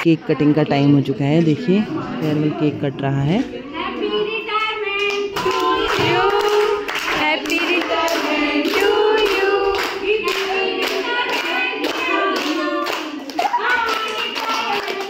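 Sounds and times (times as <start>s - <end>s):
women singing together: 3.4s - 15.0s
rhythmic clapping: 4.5s - 15.0s.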